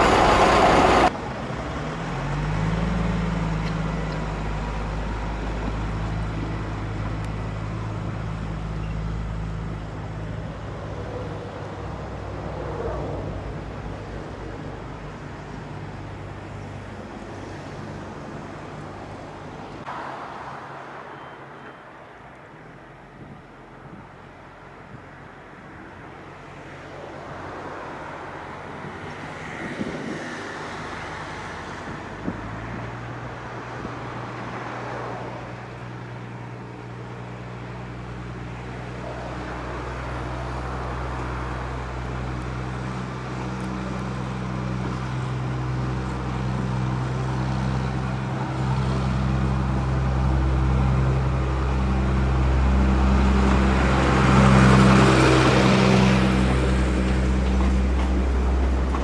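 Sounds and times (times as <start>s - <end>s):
diesel locomotive engine running: 0.0s - 19.8s, 35.6s - 59.0s
train wheel and rail noise: 0.0s - 19.8s, 24.8s - 59.0s.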